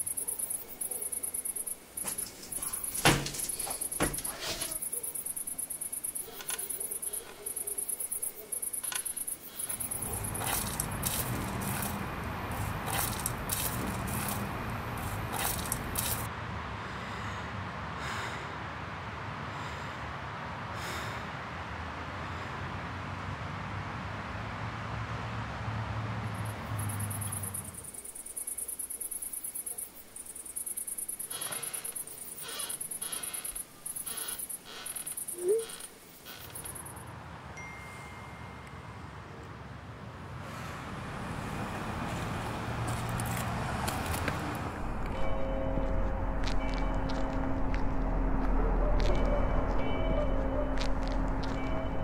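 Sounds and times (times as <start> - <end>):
crickets trilling: 0.0 - 16.3, 26.3 - 37.2
low hum: 44.6 - 52.0.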